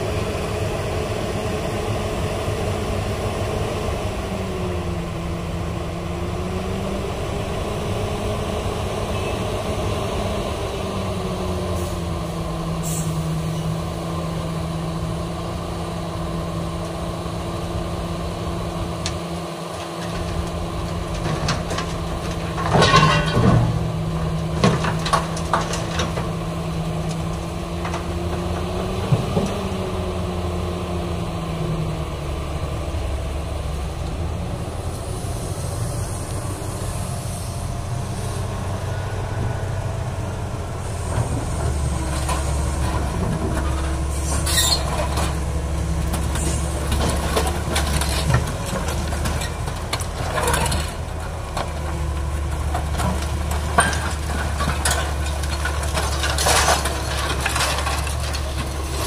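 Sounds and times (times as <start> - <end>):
excavator diesel engine: 0.0 - 59.0
bucket clanking on scrap metal: 19.8 - 26.4, 52.5 - 59.0.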